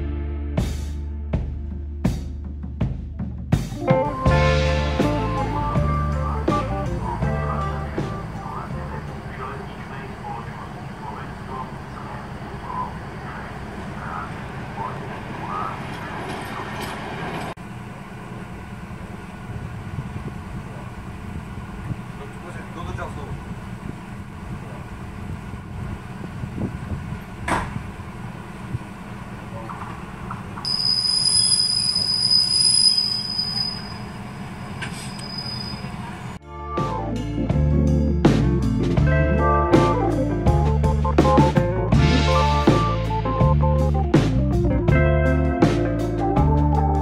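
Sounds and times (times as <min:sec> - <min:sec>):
rail vehicle engine rumble: 0:03.8 - 0:47.0
train wheels squealing: 0:30.6 - 0:36.4.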